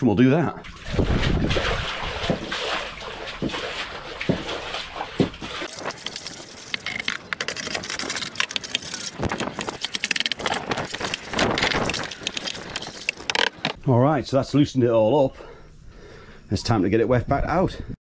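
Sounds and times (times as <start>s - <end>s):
brush scrubbing wet floor: 0.7s - 13.8s.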